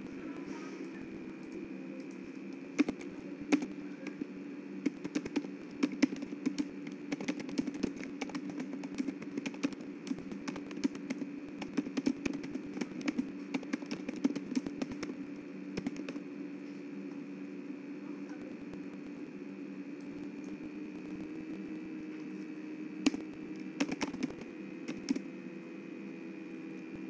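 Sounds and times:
low hum: 0.0 - 27.0
keyboard typing: 0.8 - 16.2, 20.0 - 25.3.

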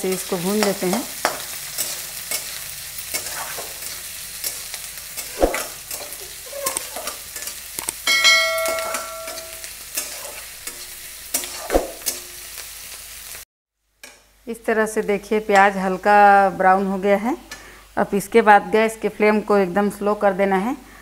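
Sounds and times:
onions sizzling in oil: 0.0 - 20.6
spatula scraping metal pan: 1.2 - 7.6
metallic ring: 8.0 - 9.6.

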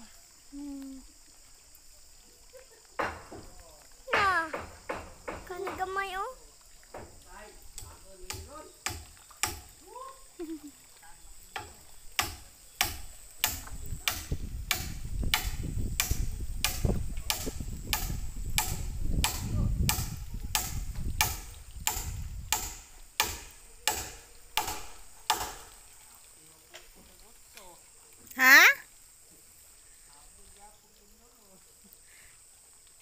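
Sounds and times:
hammer blows on wood: 3.0 - 6.0, 11.6 - 25.8.

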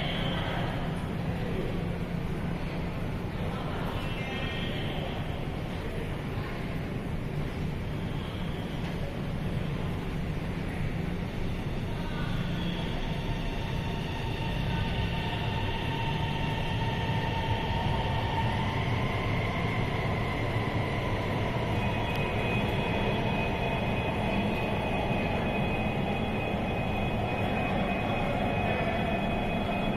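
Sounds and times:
train rail rumble: 0.0 - 29.9
traction motor whine: 12.8 - 29.9.

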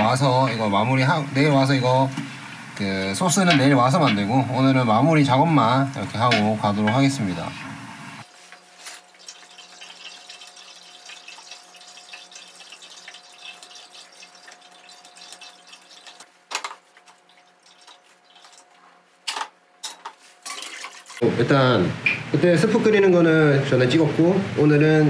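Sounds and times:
stock splashing and dripping: 9.0 - 18.6.

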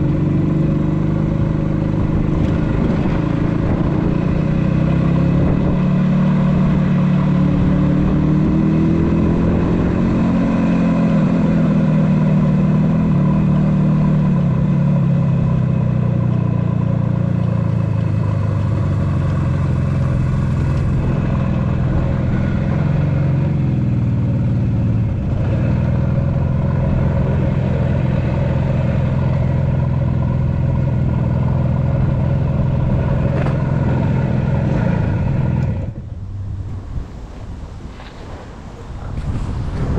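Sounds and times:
motorcycle engine running: 0.0 - 36.5.

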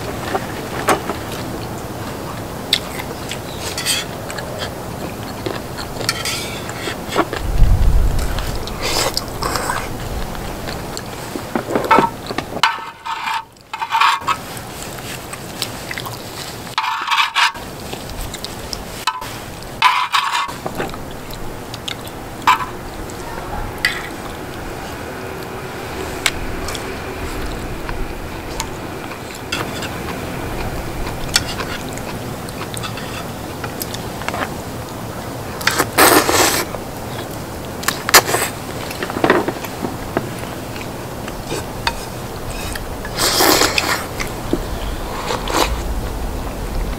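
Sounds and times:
chewing and mouth noises: 0.1 - 12.6, 13.5 - 16.8, 17.6 - 19.8, 20.5 - 46.1
utensils scraping cookware: 3.6 - 4.8, 6.0 - 7.3, 11.9 - 14.5, 16.7 - 17.6, 19.0 - 20.6, 32.6 - 33.4.

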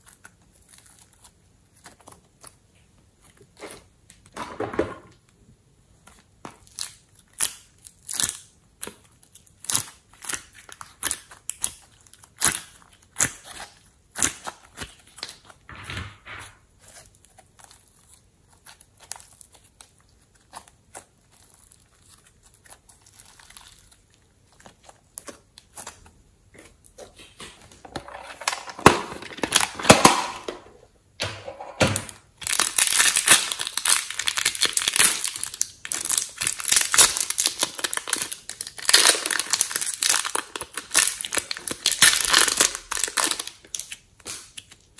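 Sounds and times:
plastic bag crinkling: 27.6 - 30.8, 31.5 - 43.9.

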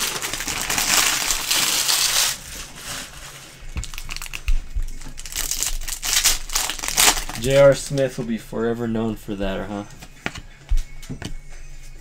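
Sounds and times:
foil wrapper crinkling: 0.0 - 8.0.

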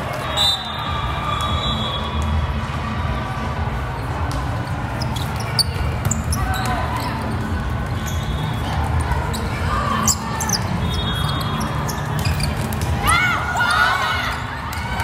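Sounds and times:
sneakers squeaking on court: 4.0 - 13.0.

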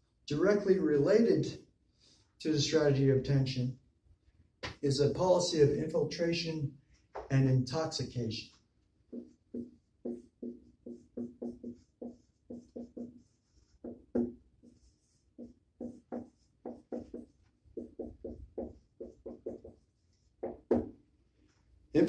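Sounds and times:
marker squeaking on whiteboard: 8.5 - 21.0.

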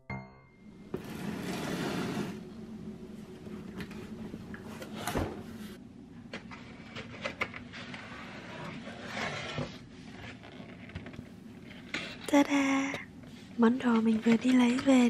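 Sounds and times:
cardboard sliding and scraping: 0.9 - 2.4, 7.7 - 11.0.

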